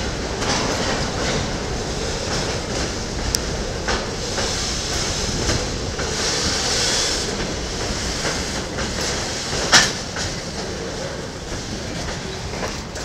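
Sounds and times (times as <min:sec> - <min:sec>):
clacks over rail joints: 0:00.0 - 0:13.0
train wheels rumbling on rails: 0:00.0 - 0:13.0
high hiss: 0:01.7 - 0:10.1.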